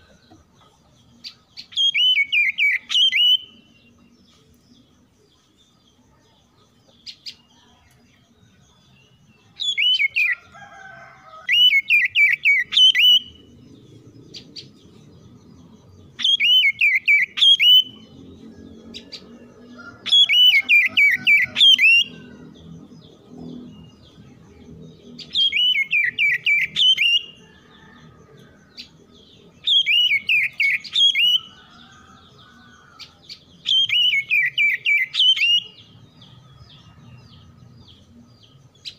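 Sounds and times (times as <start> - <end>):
bird singing whistled notes: 1.2 - 4.9, 8.6 - 10.4, 11.5 - 19.4, 20.1 - 24.2, 25.0 - 27.9, 28.9 - 32.1, 33.0 - 38.9.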